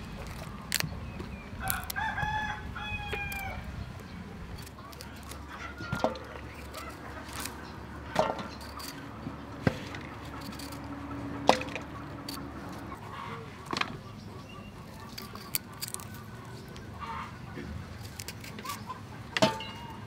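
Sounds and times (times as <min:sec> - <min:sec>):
knife snapping cauliflower florets: 0:00.0 - 0:02.0, 0:04.5 - 0:07.6, 0:14.9 - 0:16.6, 0:18.0 - 0:18.9.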